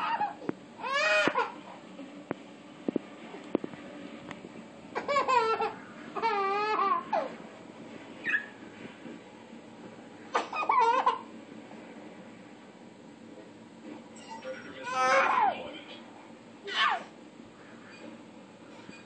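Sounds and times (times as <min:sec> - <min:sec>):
toddler laughing: 0:00.0 - 0:01.6, 0:05.0 - 0:07.4, 0:10.4 - 0:11.2.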